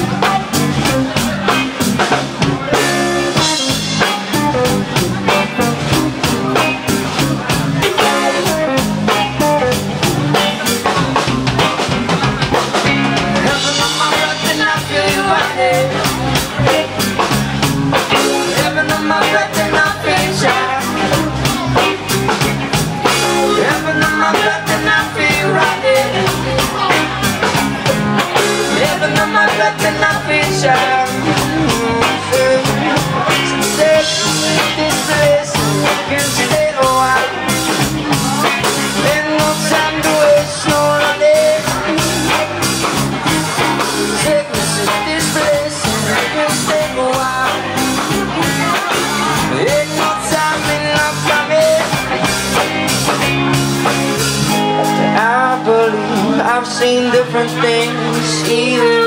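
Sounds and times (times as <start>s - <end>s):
rock band playing: 0.0s - 59.0s.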